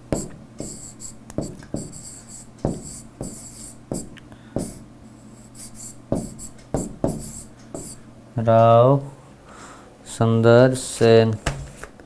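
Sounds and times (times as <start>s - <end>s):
stylus tapping on screen: 0.1s - 4.8s, 6.1s - 8.0s
stylus scratching strokes: 0.2s - 8.0s.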